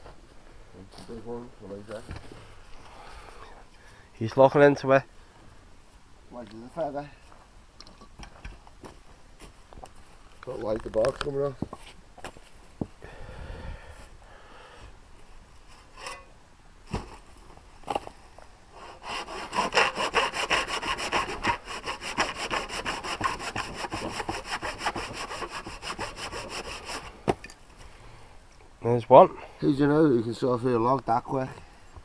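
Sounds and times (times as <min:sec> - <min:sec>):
handsaw cutting through log: 0:18.8 - 0:27.2.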